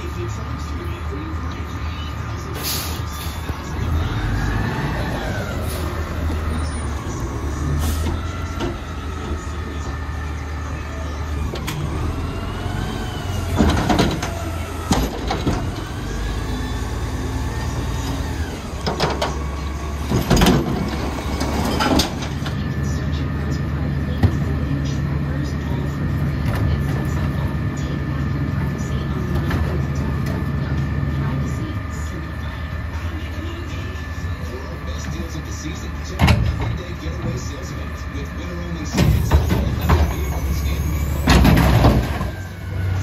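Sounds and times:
diesel engine revving: 0.0 - 43.0
hydraulic pump whine: 2.5 - 43.0
metal bangs and clanks: 39.0 - 42.4.

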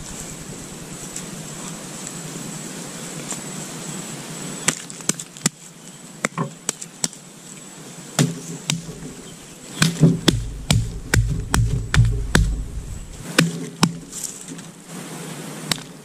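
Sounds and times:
hands patting mud onto clay: 8.2 - 14.1
hands digging damp soil: 8.2 - 14.8.

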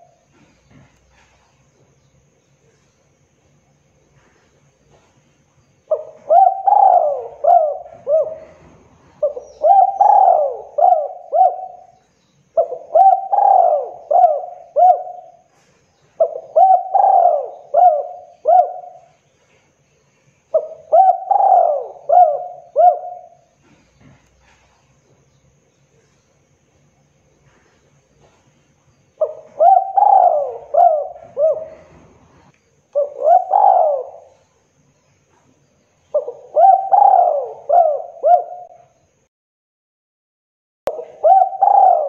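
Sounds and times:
dove cooing: 0.0 - 1.4, 5.9 - 12.0, 12.6 - 19.2, 20.5 - 24.8, 29.2 - 34.6, 35.3 - 39.0, 40.9 - 42.0.

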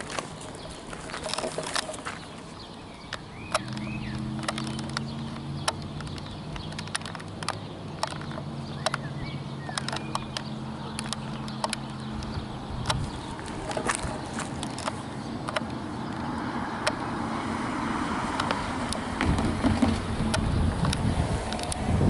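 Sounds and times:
low engine-like hum: 0.0 - 22.0
bird chirps: 0.3 - 16.9
sharp clicks: 3.0 - 17.1, 18.3 - 19.5, 20.2 - 21.9.

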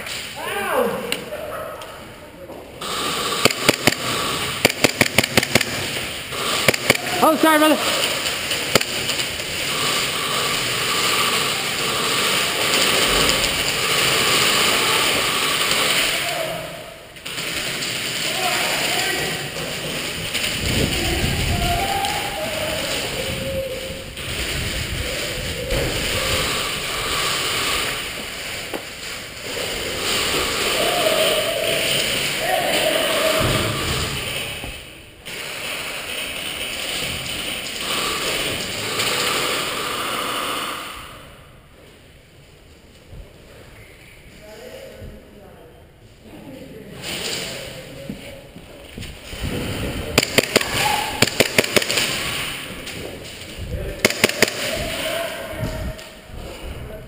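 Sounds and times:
game gun shots cracking: 3.4 - 5.9, 50.2 - 52.5, 54.0 - 55.0.

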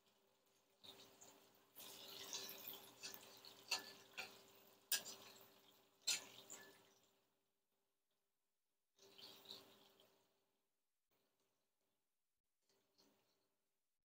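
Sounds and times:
hot oil sizzling and crackling: 0.0 - 7.2, 9.0 - 10.2.

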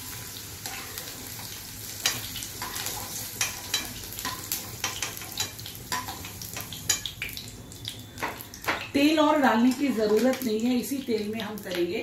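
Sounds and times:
food sizzling and crackling in oil: 0.0 - 12.0
spatula scraping and tapping pan: 0.6 - 7.1, 9.7 - 10.4.

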